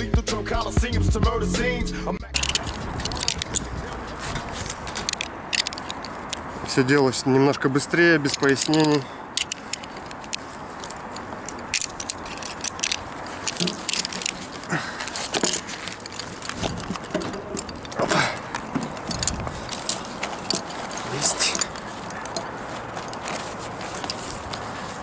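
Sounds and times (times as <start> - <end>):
carabiners knocking on metal: 2.3 - 7.0, 7.7 - 25.0.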